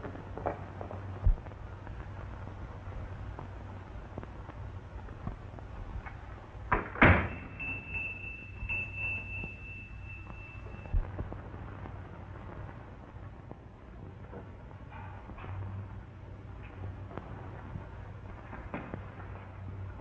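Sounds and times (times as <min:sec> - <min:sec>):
steady low hum: 0:00.0 - 0:20.0
thin high steady tone: 0:07.2 - 0:11.0.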